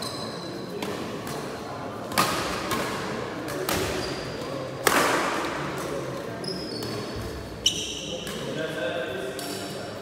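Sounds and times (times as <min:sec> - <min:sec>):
shoes squeaking on court: 0:00.0 - 0:01.5, 0:03.7 - 0:04.6, 0:06.1 - 0:08.5
racket hitting shuttlecock: 0:02.1 - 0:05.9.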